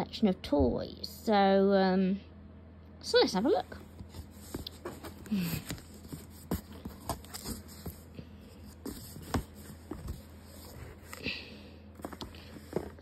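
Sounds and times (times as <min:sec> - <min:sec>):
cardboard box flaps rustling: 0:03.9 - 0:11.2.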